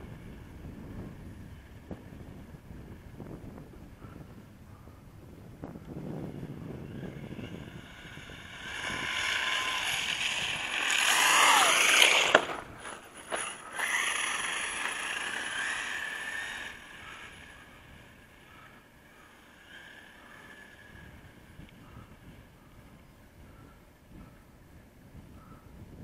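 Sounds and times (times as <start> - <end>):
electric motor whining: 5.8 - 22.8.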